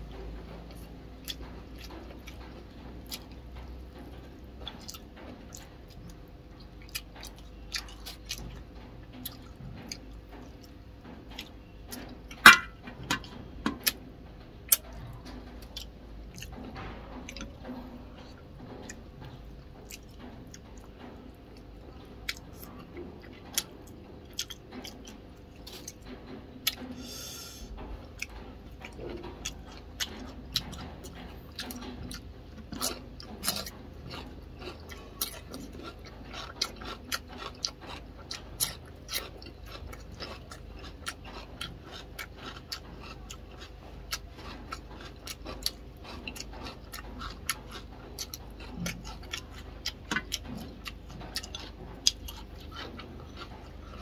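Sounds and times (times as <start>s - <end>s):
man chewing: 0.0s - 14.0s, 14.7s - 54.0s
biting into cucumber: 26.6s - 54.0s.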